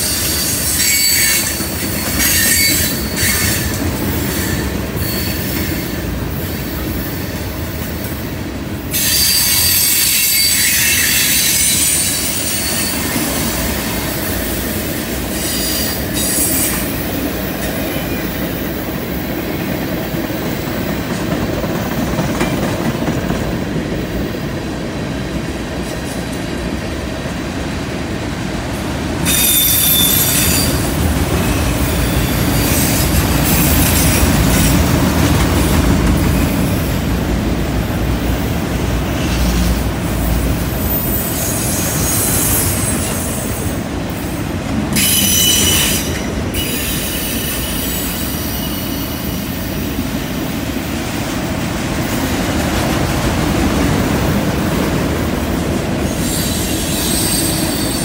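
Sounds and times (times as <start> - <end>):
high-pitched wheel squeal: 0.0 - 1.6, 8.9 - 13.2, 29.3 - 34.7, 40.8 - 43.4, 45.0 - 49.6, 56.0 - 58.0
freight train wheels rumbling: 0.0 - 58.0.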